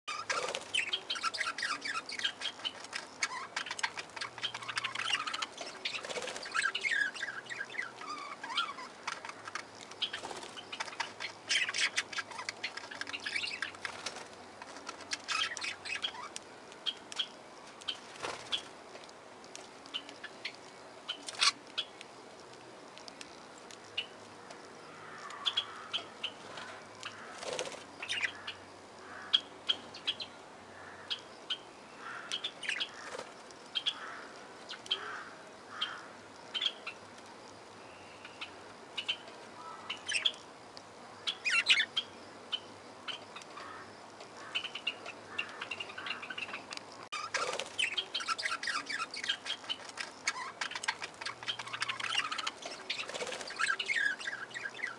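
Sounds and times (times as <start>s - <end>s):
budgerigars chirping and warbling: 0.1s - 14.2s, 15.0s - 16.3s, 20.0s - 21.9s, 41.3s - 43.7s, 44.4s - 54.9s
wing flapping: 5.7s - 6.7s, 26.4s - 27.9s, 47.2s - 47.9s, 52.6s - 53.8s.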